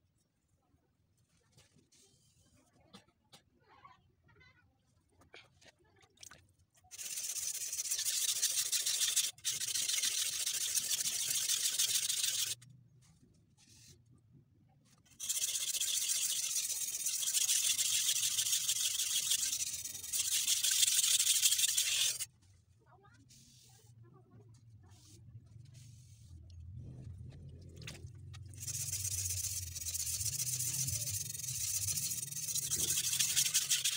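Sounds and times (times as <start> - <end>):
knife scraping on whetstone: 15.2 - 22.3, 28.6 - 33.9.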